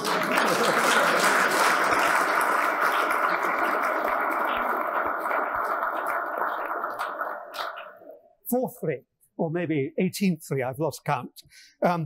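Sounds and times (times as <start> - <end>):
audience applause: 0.0 - 8.1.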